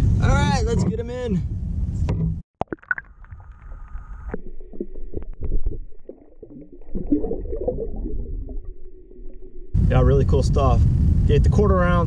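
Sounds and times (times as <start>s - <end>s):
muffled underwater sloshing: 2.7s - 10.0s.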